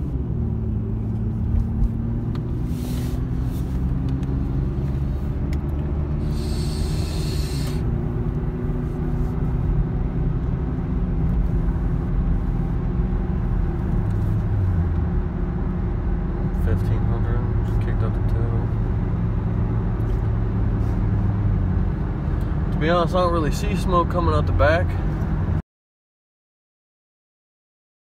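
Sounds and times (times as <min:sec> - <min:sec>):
car engine and road noise: 0:00.0 - 0:25.6
brief hiss: 0:06.2 - 0:07.8.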